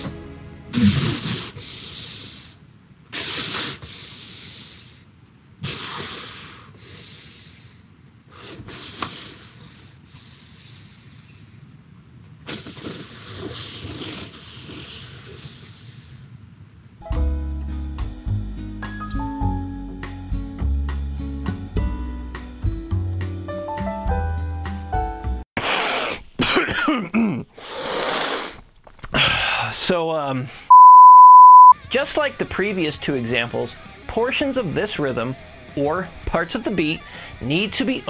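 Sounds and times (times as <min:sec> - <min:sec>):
music: 0:00.0 - 0:01.3, 0:17.0 - 0:25.4, 0:31.8 - 0:37.8
man sputtering breaths through foam: 0:00.7 - 0:11.5, 0:25.6 - 0:26.3, 0:27.5 - 0:29.8, 0:37.0 - 0:37.4.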